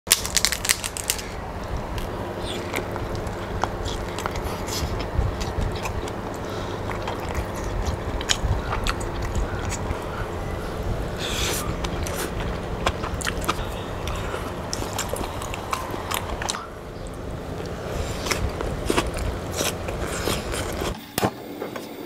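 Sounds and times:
lobster shell cracking: 0:00.1 - 0:01.4
person chewing: 0:00.1 - 0:21.0
steady low hum: 0:00.1 - 0:22.0.

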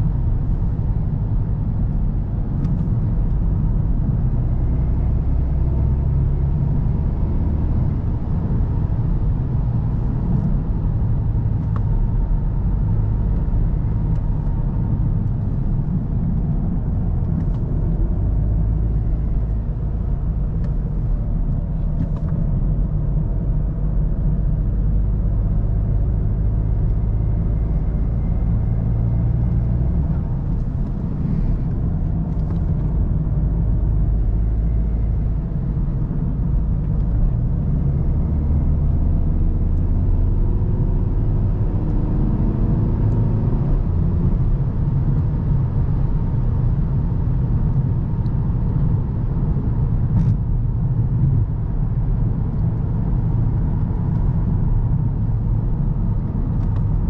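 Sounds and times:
diesel car engine running: 0:00.0 - 0:57.0
tyre and road rumble: 0:00.0 - 0:57.0.

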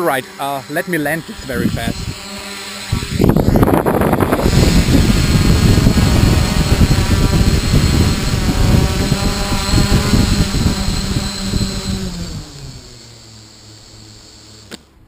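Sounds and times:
drone propellers buzzing: 0:00.0 - 0:15.0
wind buffeting the microphone: 0:01.4 - 0:12.9.

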